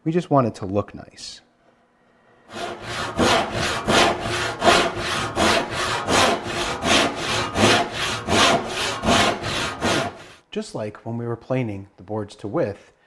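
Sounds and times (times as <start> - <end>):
handsaw cutting wood: 2.5 - 10.4.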